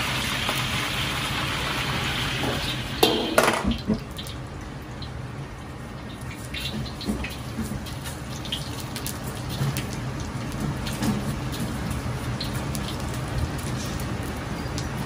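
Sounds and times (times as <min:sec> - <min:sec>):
wok burner rushing: 0:00.0 - 0:04.1, 0:06.0 - 0:15.0
peppercorns sizzling in hot oil: 0:00.0 - 0:15.0.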